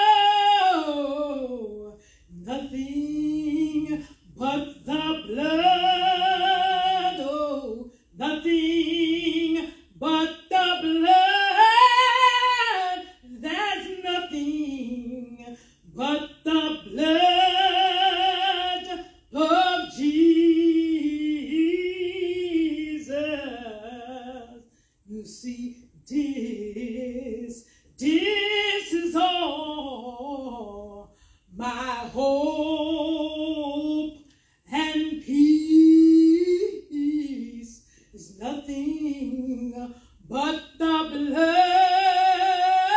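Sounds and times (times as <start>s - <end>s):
woman singing a cappella: 0.0s - 42.9s
singer breathing: 1.9s - 2.4s, 15.5s - 15.9s, 24.6s - 25.1s, 27.6s - 28.0s, 31.0s - 31.6s, 34.2s - 34.7s, 37.8s - 38.2s, 39.9s - 40.2s.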